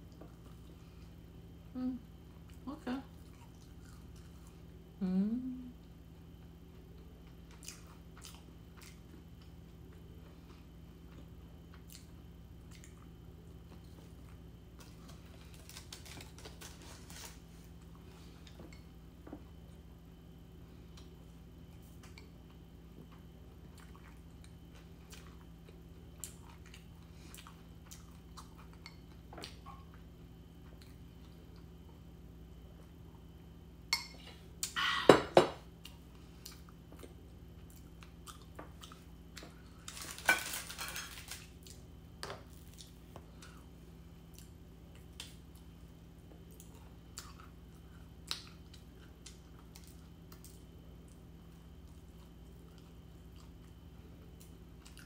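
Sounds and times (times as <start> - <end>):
chewing sounds: 2.5 - 4.6, 7.3 - 13.1, 46.4 - 51.2.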